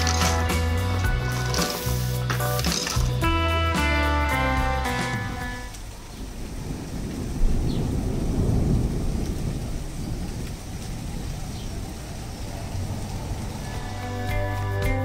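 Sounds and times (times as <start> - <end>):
thunder rumbling: 5.0 - 14.6.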